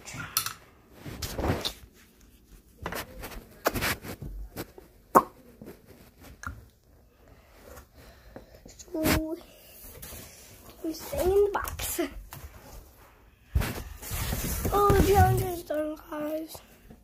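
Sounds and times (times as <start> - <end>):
rustling and scraping: 0.9 - 6.4, 8.8 - 16.5.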